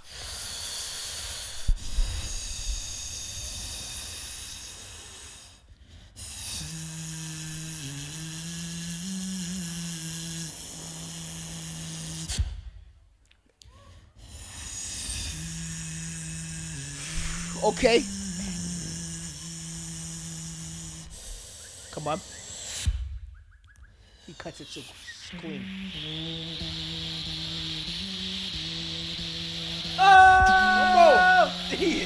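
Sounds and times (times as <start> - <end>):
person beatboxing: 6.2 - 12.5, 14.3 - 21.4, 24.2 - 32.0.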